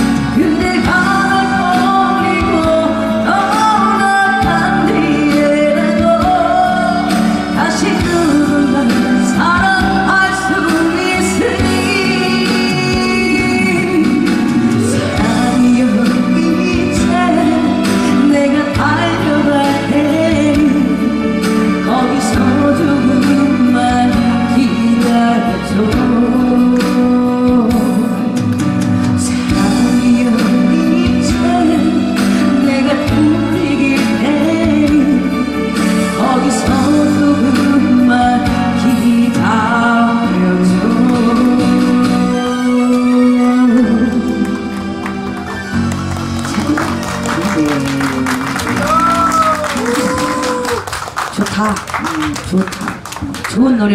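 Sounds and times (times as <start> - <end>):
woman singing: 0.0 - 44.9, 46.4 - 50.9
instrumental backing track with beat: 0.0 - 50.8.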